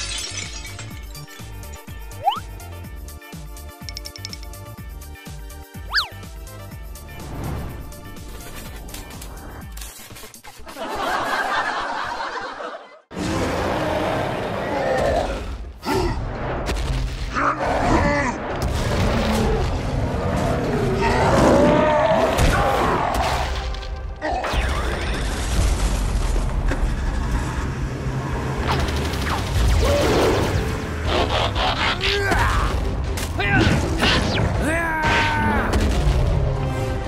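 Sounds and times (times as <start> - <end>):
background music: 0.2 - 11.4, 27.3 - 37.0
gliding roar-like effects: 13.1 - 15.6
booming explosion: 18.4 - 20.6
blaster fire effects: 28.6 - 31.6.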